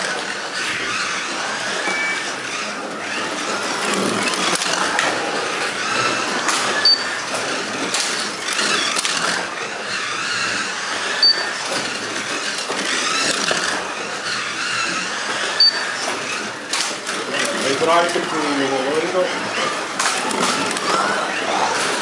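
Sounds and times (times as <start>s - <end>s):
slot car motors whining: 0.0s - 22.0s
slot cars rattling on track: 0.0s - 22.0s
short high beeps: 1.8s - 2.3s, 11.2s - 11.5s.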